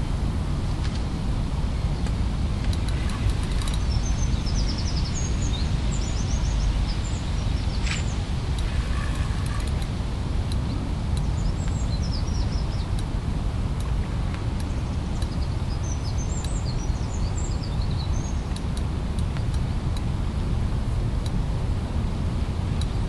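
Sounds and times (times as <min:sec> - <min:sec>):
low outdoor rumble: 0:00.0 - 0:23.0
small birds chirping: 0:02.0 - 0:09.9, 0:10.5 - 0:13.1, 0:14.6 - 0:19.8.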